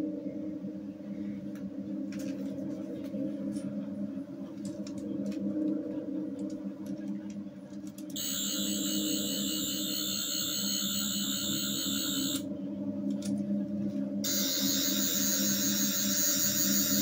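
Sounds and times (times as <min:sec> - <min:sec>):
low electronic hum: 0:00.0 - 0:17.0
high-pitched electronic whirring: 0:08.2 - 0:12.4, 0:14.2 - 0:17.0.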